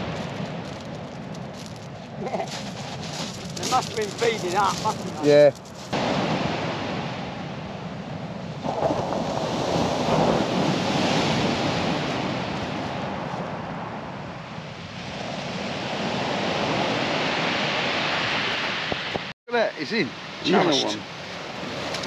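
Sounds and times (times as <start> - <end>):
surf breaking on shingle: 0.0 - 6.8.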